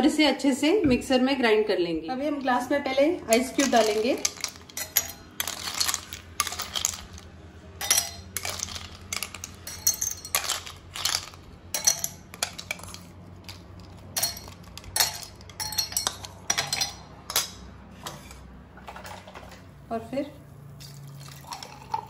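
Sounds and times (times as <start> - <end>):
ice cubes clinking in glasses: 3.3 - 17.6, 20.8 - 22.0
spoon scooping ice: 3.3 - 17.6.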